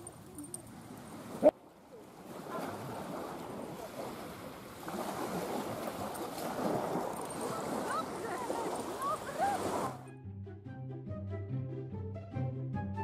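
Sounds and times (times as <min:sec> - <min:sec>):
small waves on sandy shore: 0:00.0 - 0:10.0
wind: 0:00.0 - 0:10.2.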